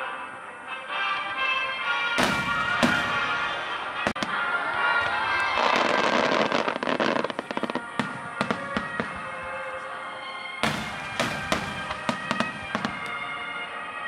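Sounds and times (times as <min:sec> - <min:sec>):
music: 0:00.0 - 0:14.0
fireworks bursting and crackling: 0:02.2 - 0:09.9, 0:10.6 - 0:13.9.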